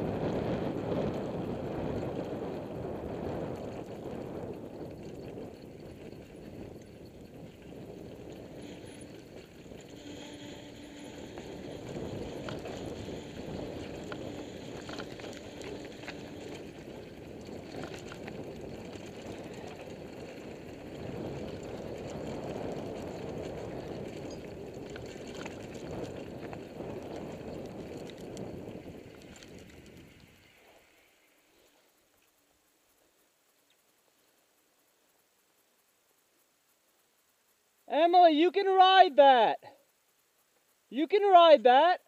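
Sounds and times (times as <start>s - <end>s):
bike tyres rumbling on dirt: 0.0s - 31.7s
bike clicking and rattling: 0.1s - 30.8s.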